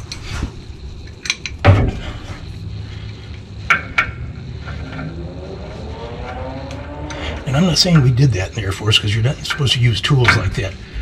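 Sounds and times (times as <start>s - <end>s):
steel tools clanking: 7.1s - 10.8s.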